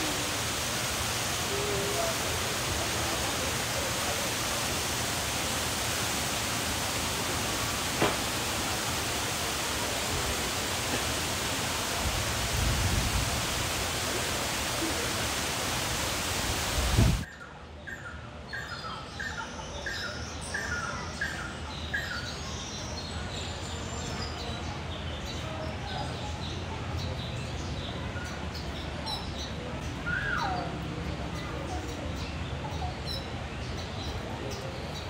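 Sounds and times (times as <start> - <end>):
waterfall rushing: 0.0 - 17.3.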